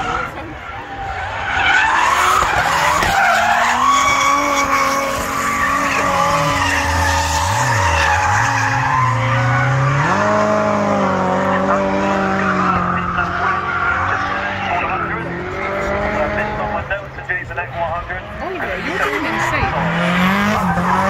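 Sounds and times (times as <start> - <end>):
tyres screeching: 0.0 - 10.6
car engine revving: 0.0 - 21.0.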